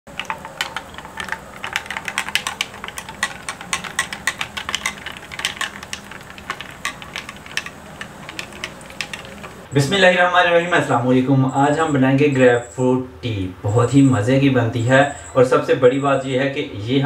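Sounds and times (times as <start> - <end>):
liquid pouring into a mug: 0.1 - 9.7.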